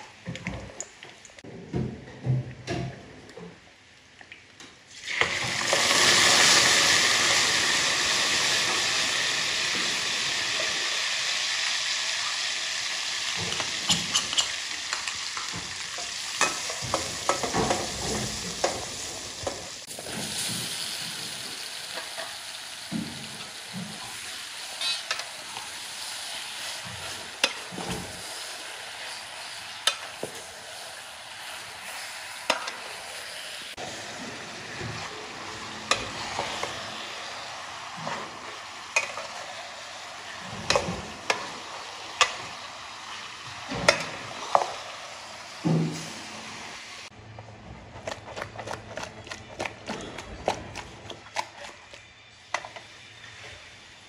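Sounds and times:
sauce sizzling in hot oil: 4.9s - 47.2s
metal ladle scraping pot: 24.8s - 25.3s.

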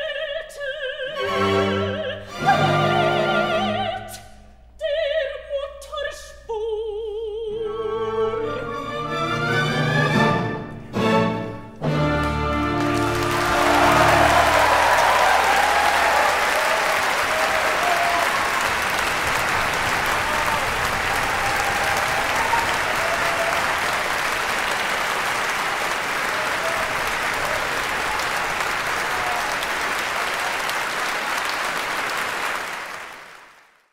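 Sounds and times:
audience applauding: 12.0s - 33.9s.

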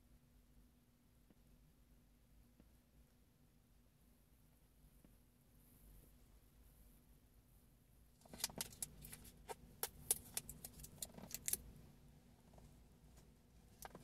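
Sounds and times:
plastic containers clicking and crackling: 8.2s - 11.7s, 13.8s - 14.0s.

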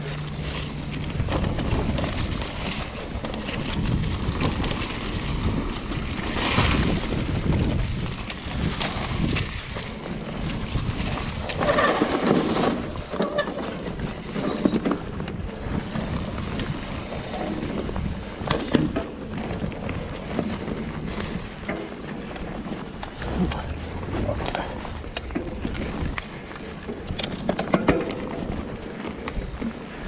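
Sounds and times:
bike tyres crunching leaves: 0.0s - 27.0s
bike clicks and rattles: 0.0s - 30.0s
wind on microphone: 0.0s - 30.0s.

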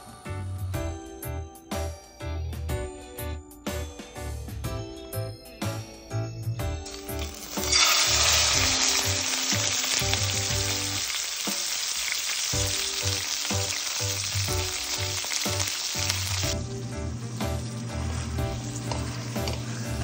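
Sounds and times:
light background music: 0.0s - 20.0s
meat sizzling in hot oil: 6.8s - 20.0s.

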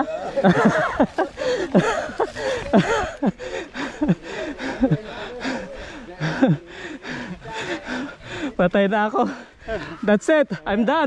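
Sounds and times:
person panting with groans: 1.2s - 8.6s.

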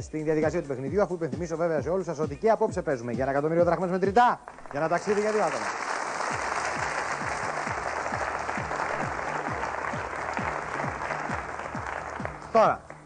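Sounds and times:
game show music with drumbeat: 0.0s - 13.0s
audience applauding: 4.4s - 13.0s.

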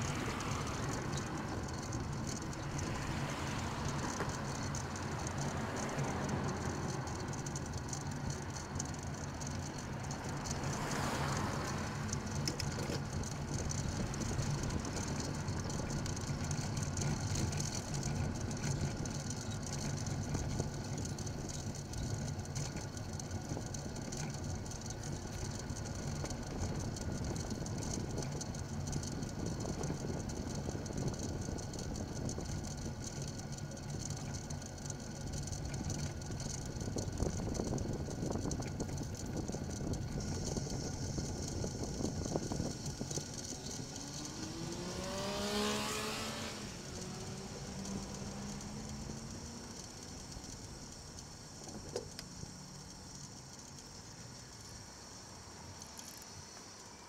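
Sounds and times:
cars passing: 0.0s - 20.6s, 42.9s - 50.8s
road and wind noise: 0.0s - 57.0s.

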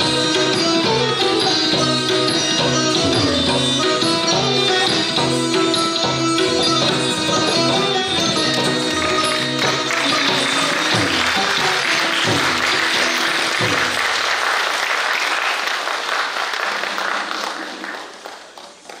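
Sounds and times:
audience applauding: 8.5s - 19.0s.

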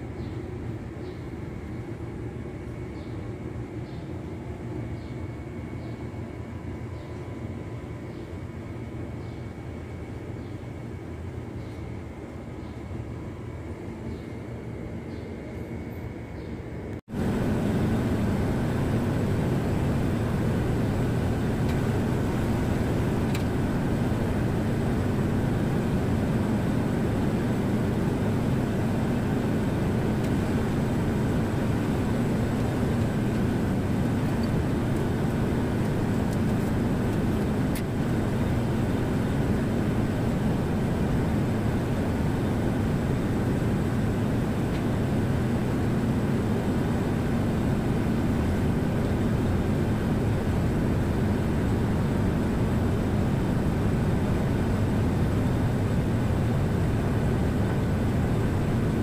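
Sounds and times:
machinery droning: 12.9s - 59.0s.

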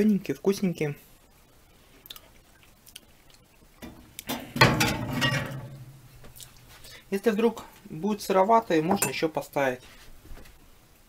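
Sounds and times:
pan scraping on metal rack: 3.8s - 6.2s.

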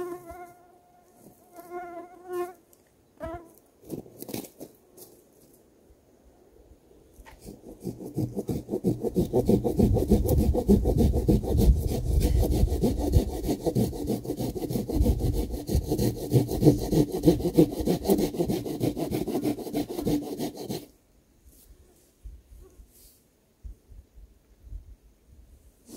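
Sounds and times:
hand saw cutting log: 7.3s - 20.9s.

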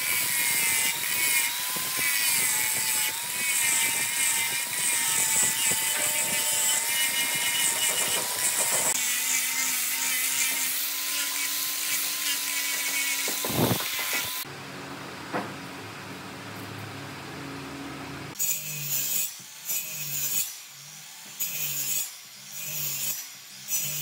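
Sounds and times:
angle grinder sanding wood: 0.0s - 14.5s.

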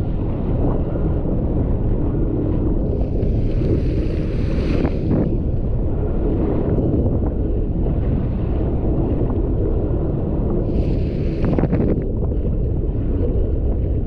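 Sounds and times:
wind buffeting microphone: 0.0s - 14.0s
rushing water: 2.9s - 5.5s.

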